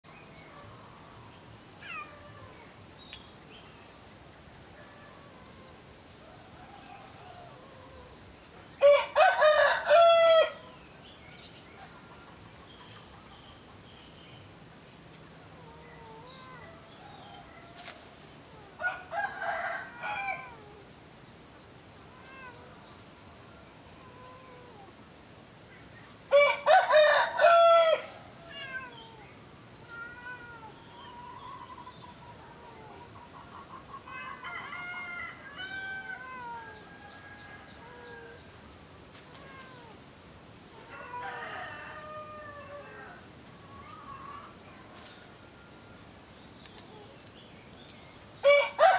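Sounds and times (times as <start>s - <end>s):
small birds chirping: 0.1s - 8.8s, 10.6s - 18.8s, 28.5s - 34.5s, 42.6s - 48.6s
rooster crowing: 8.8s - 10.6s, 18.8s - 20.6s, 26.3s - 28.2s, 34.1s - 38.4s, 40.8s - 43.2s, 48.4s - 48.9s.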